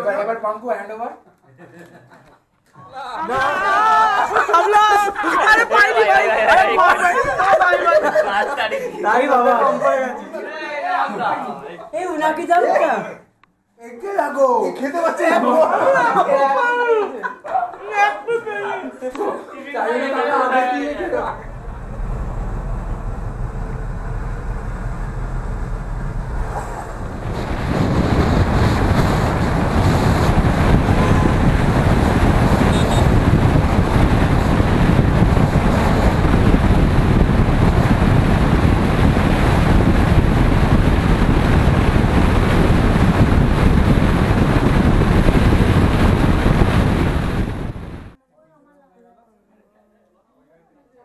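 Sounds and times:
car road and wind noise: 21.2 - 48.2.

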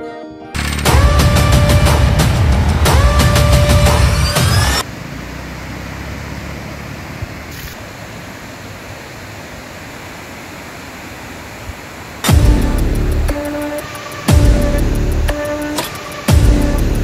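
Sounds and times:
music: 0.0 - 4.8, 12.3 - 17.0.

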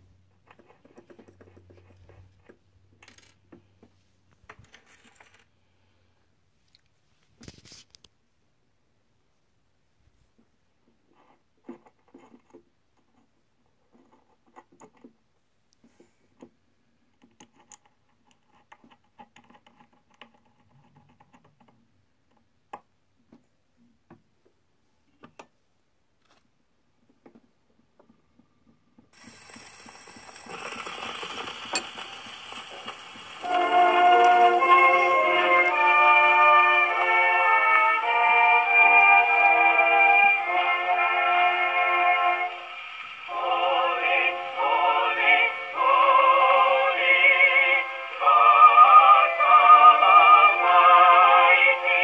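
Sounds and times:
record surface hiss: 0.0 - 52.0
orchestra playing from phonograph: 29.5 - 52.0.

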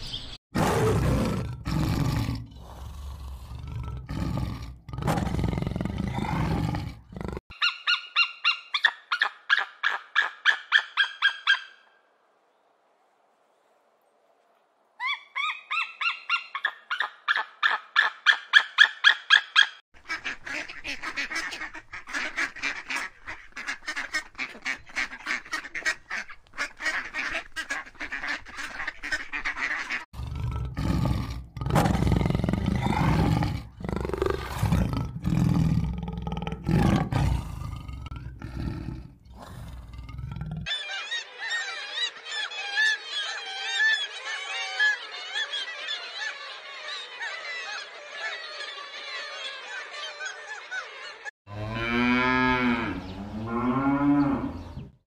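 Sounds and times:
cheetah snarling and growling: 0.6 - 7.5, 30.1 - 40.7
eagle chattering calls: 7.5 - 11.8
eagle yelping calls: 7.5 - 11.9, 15.0 - 30.0
seabird colony calling: 15.0 - 30.1, 40.6 - 51.3.

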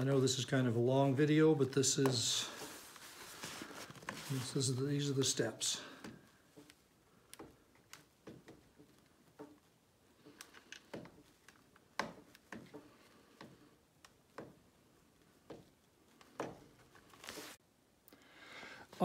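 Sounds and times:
fabric ticks and crinkles: 1.6 - 5.4.

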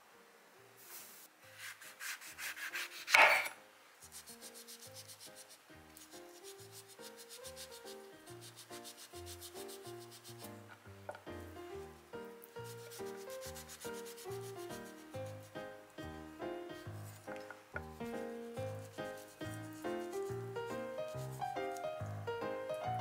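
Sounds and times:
soft background music: 0.0 - 23.0
knife cutting peel on board: 1.6 - 5.5.

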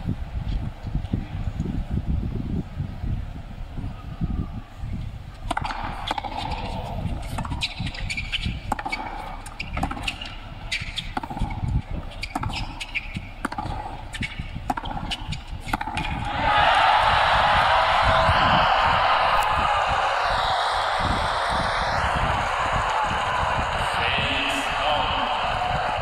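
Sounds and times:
racket hitting tennis ball: 5.5 - 16.3
tennis ball bouncing: 5.5 - 16.3.

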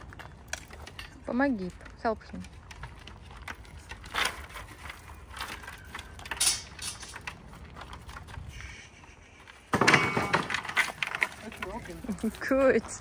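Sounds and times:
wooden boards creaking: 9.5 - 12.2.

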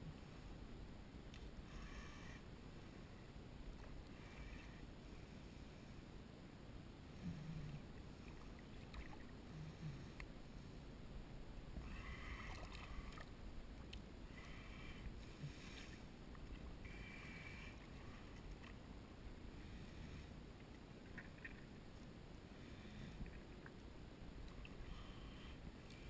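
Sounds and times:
shallow water lapping: 7.8 - 10.2, 11.8 - 18.9.

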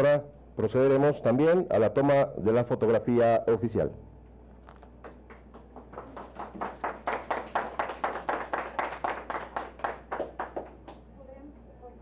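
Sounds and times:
people clapping: 4.7 - 11.1.

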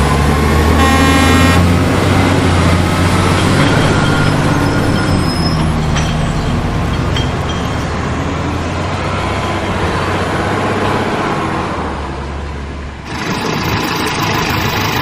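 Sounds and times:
truck horn toot: 0.7 - 1.8
truck engine running: 13.0 - 15.0.

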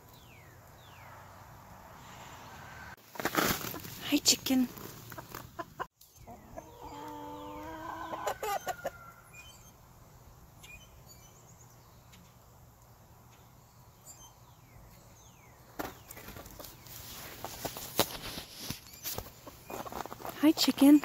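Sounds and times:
chicken calling: 5.1 - 9.3
faint chick chirps: 5.6 - 9.7.

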